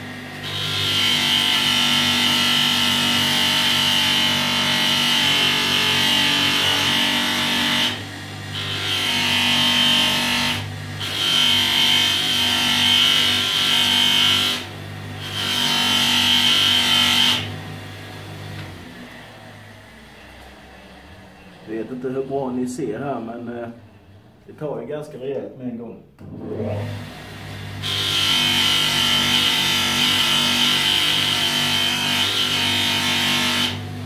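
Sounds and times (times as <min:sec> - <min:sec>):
grinder motor hum: 0:00.0 - 0:23.3, 0:26.2 - 0:34.0.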